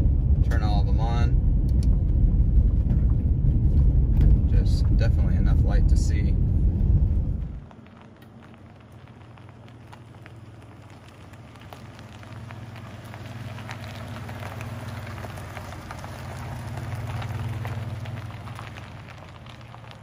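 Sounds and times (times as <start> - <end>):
dense fine crackling: 0.0 - 20.0
vehicle engine humming: 0.0 - 20.0.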